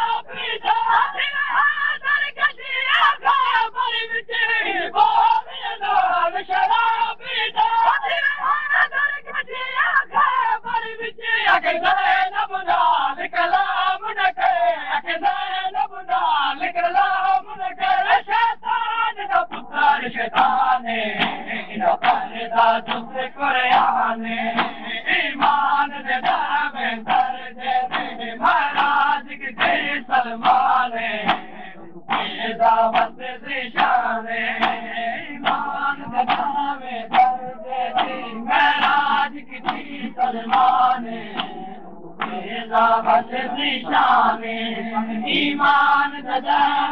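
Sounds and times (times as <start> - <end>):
crowd of men chanting: 0.0 - 46.9
rhythmic chest beating slaps: 10.0 - 46.9.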